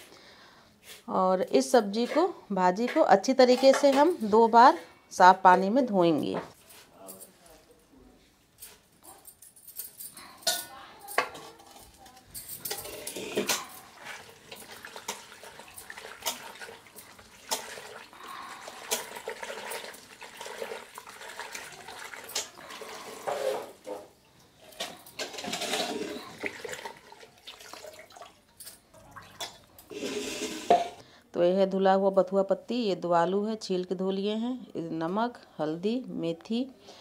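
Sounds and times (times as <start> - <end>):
steel bowl clanking against pot: 12.4 - 24.1, 24.8 - 27.1
water splashing and sloshing: 12.6 - 31.0.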